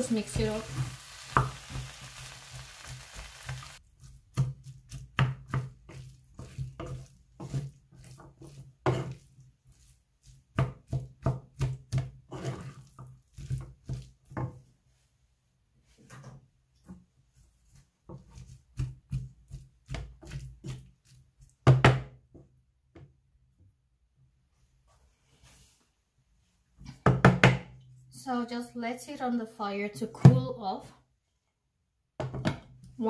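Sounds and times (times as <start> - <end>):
sizzling hiss: 0.0 - 3.8
spatula knocking and scraping pan: 0.0 - 14.8, 15.9 - 22.4, 32.2 - 33.0.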